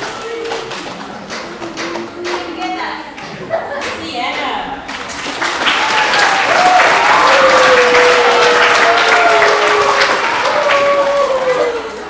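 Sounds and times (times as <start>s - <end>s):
audience applauding: 0.0s - 2.6s, 4.9s - 12.0s
drawn-out cheers: 5.8s - 12.0s.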